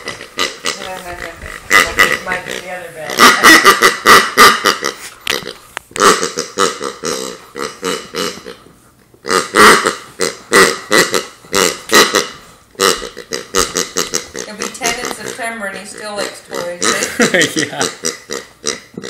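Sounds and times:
squeaky dog toy squeaking: 3.1 - 8.5.

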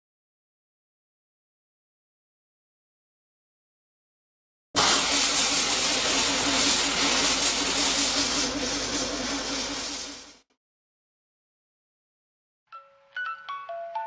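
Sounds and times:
burning fuse fizzing: 4.8 - 10.4.

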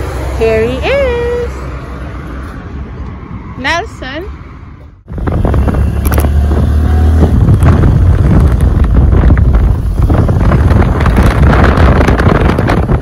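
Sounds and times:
wind buffeting microphone: 4.9 - 13.0.

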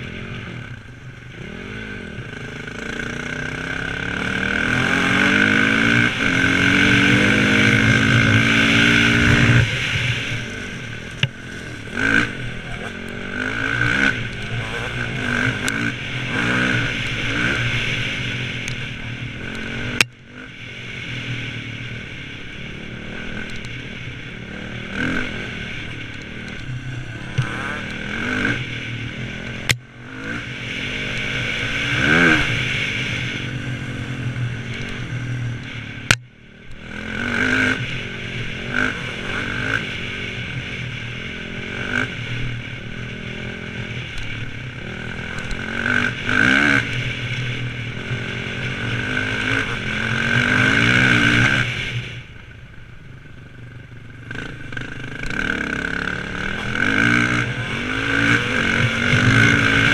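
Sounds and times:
motorcycle engine revving: 0.0 - 59.9.

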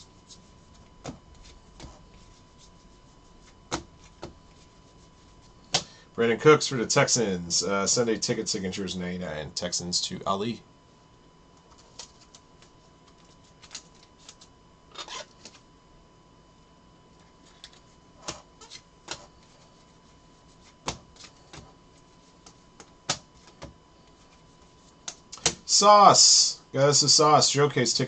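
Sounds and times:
trading cards clicking and snapping: 11.7 - 14.5, 25.0 - 25.6.

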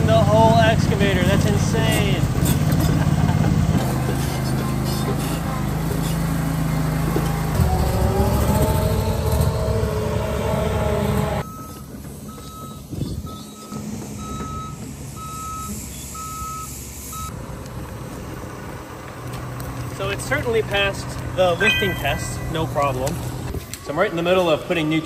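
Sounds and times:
heavy machine engine whining: 0.0 - 17.4, 21.2 - 25.0
backup alarm beeping: 11.4 - 17.3, 21.6 - 23.0.

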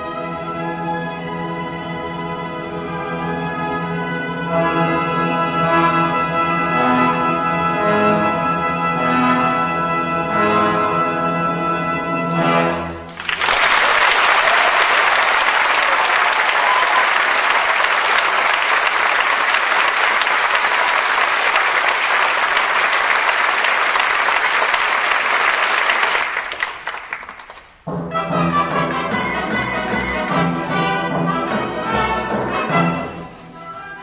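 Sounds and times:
orchestra playing: 0.0 - 25.6, 27.8 - 34.0
audience applause: 13.1 - 27.8.

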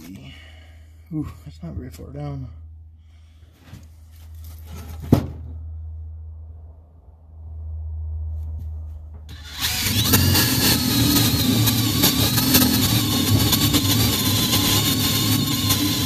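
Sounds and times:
cordless drill boring into log: 9.3 - 16.0.

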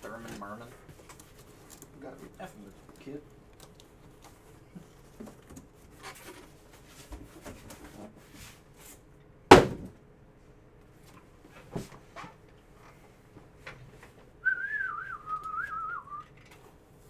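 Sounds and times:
loud thump: 9.5 - 10.0.

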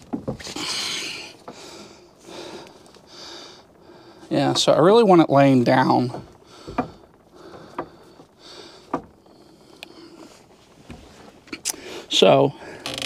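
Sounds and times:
tubing clicks and knocks: 0.0 - 2.0, 5.6 - 11.8
handling and rubbing noise: 5.6 - 11.6.

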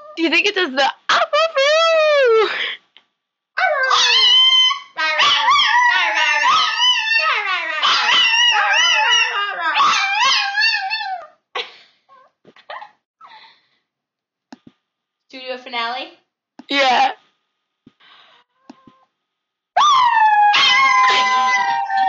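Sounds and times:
dog howling: 3.6 - 11.3, 19.8 - 22.0
dog yipping and whimpering: 3.6 - 11.3.

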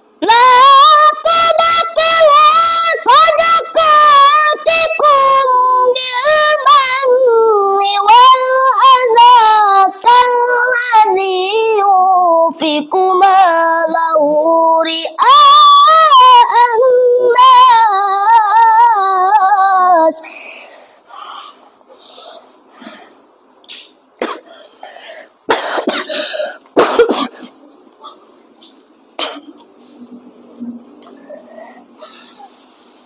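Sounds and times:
boy reciting melodically: 0.2 - 22.5.

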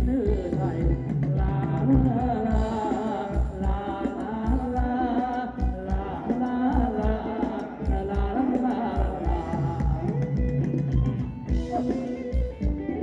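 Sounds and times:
drum beat: 0.0 - 13.0
person singing: 0.0 - 13.0.

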